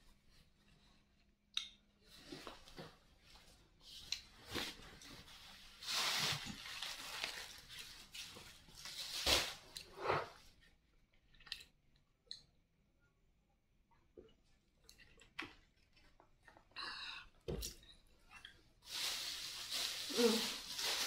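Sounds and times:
plastic bag rustling: 4.4s - 9.8s, 18.8s - 21.0s.

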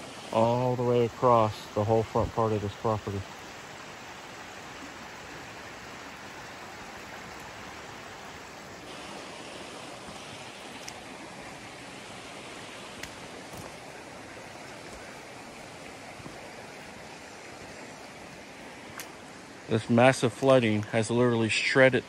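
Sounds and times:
rushing floodwater: 0.0s - 22.0s
faint ticks: 13.0s - 13.8s.

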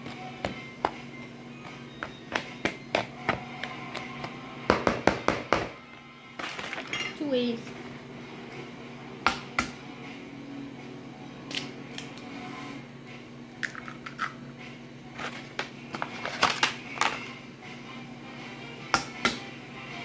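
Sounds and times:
faint background music: 0.0s - 20.0s
kitchen items clicking and crinkling: 6.4s - 7.3s, 15.2s - 17.2s.

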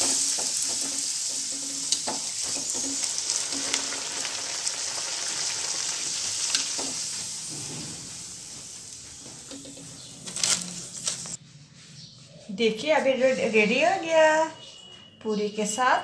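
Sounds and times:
dough sizzling in hot oil: 0.0s - 11.4s.

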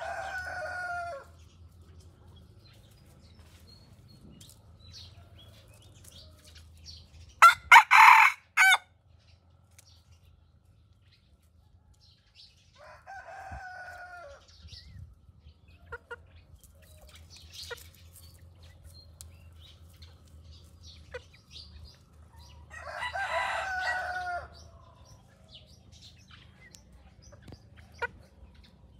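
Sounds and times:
roosters crowing: 0.0s - 1.5s, 7.4s - 8.9s, 12.7s - 14.6s, 22.4s - 25.7s.

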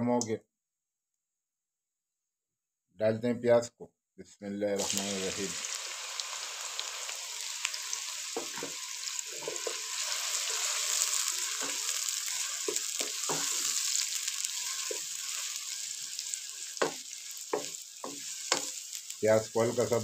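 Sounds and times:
onions sizzling in a pan: 4.8s - 20.0s
wooden spatula scraping pan: 8.4s - 15.6s.

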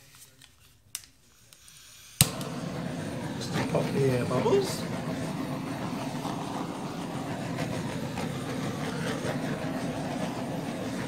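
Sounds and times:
gas torch flame burning: 0.9s - 11.0s.

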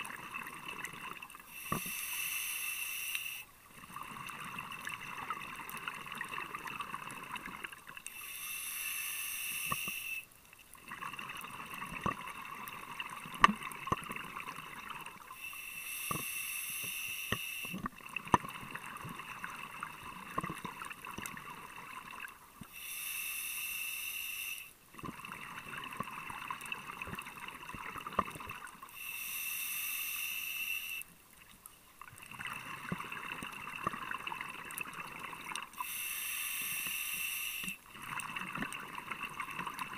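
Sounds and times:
regulator hiss on inhale: 1.4s - 3.6s, 8.0s - 10.4s, 15.2s - 17.9s, 22.6s - 24.8s, 28.8s - 31.2s, 35.7s - 37.9s.

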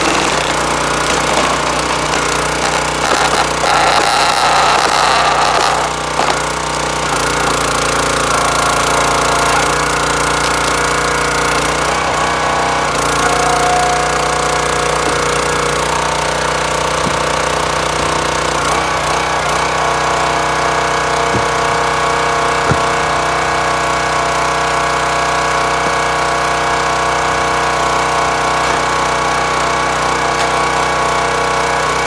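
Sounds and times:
log splitting on wedge: 0.0s - 11.9s, 13.0s - 19.6s, 20.5s - 23.7s
small gas engine running: 0.0s - 32.0s.

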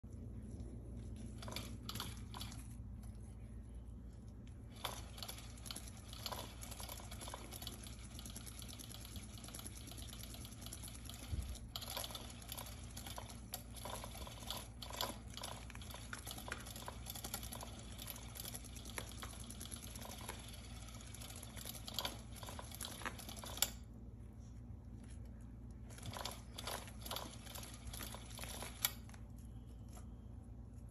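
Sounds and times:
cat toy ticking and rattling: 4.7s - 23.8s.

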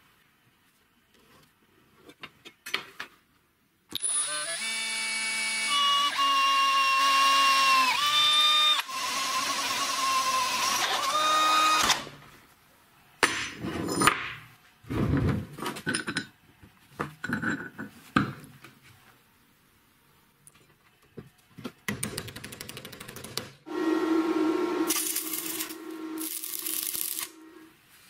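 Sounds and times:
electric drill whining: 4.0s - 12.1s, 24.9s - 27.5s.

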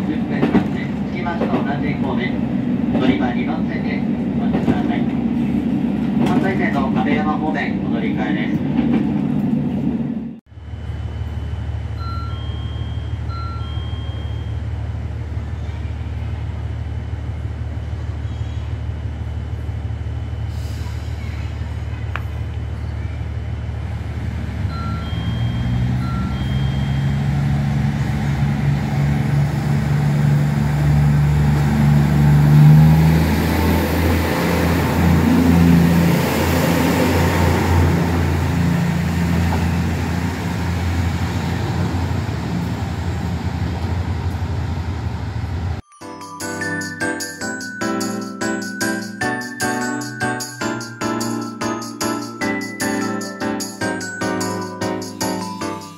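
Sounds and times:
diesel railcar engine running: 0.0s - 45.8s
short electronic chime tones: 12.0s - 14.6s, 24.7s - 27.5s.

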